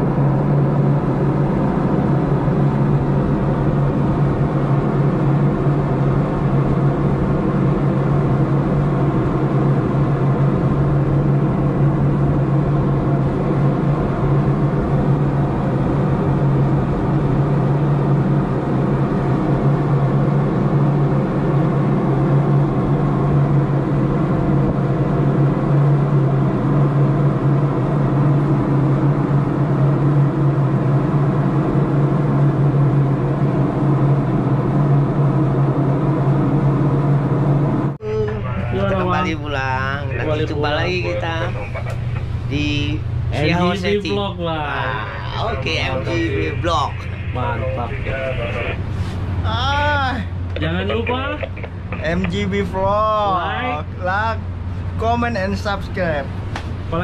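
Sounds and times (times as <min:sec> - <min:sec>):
ship engine drone: 0:00.0 - 0:57.0.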